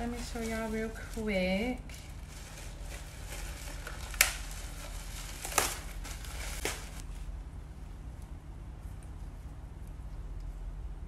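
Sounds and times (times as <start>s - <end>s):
plastic bag crinkling: 0.0s - 7.2s.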